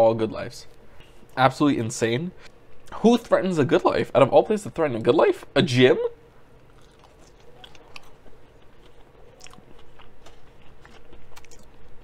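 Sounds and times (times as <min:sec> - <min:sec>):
chewing crunchy fries: 0:06.5 - 0:12.0.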